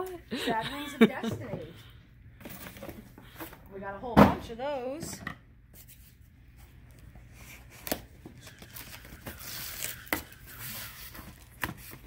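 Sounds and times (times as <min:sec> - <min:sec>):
plastic and cardboard rustling: 0:07.2 - 0:12.0.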